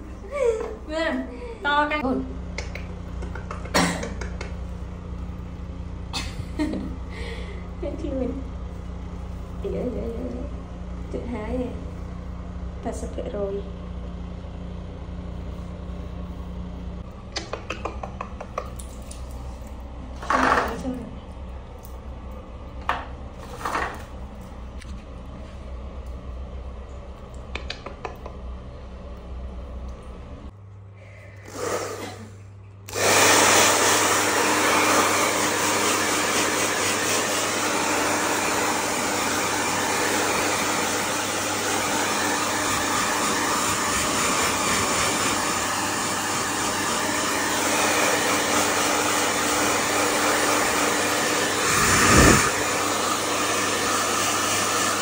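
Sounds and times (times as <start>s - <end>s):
low hum: 0.0s - 31.5s
blow dryer rushing air: 31.4s - 32.3s, 32.9s - 55.0s.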